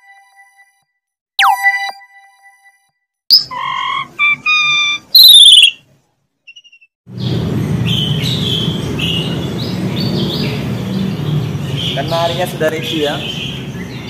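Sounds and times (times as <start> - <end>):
canaries chirping: 3.3 - 5.8, 6.5 - 14.0.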